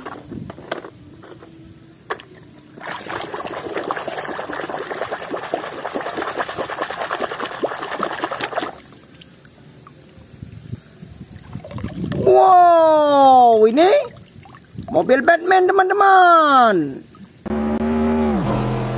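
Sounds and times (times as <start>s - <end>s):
faint water sounds: 2.2s - 17.4s
hand splashing in water basin: 2.8s - 8.9s.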